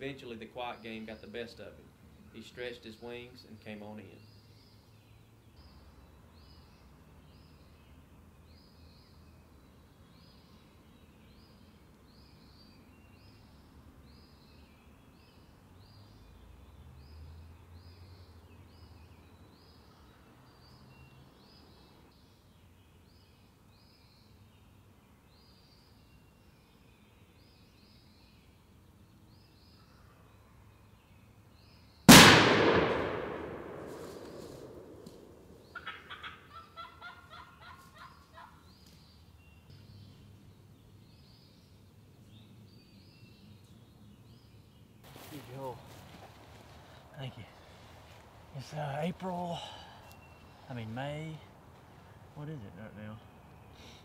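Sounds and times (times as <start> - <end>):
songbird chirps: 0.0 - 54.0
shotgun shot: 32.1 - 35.5.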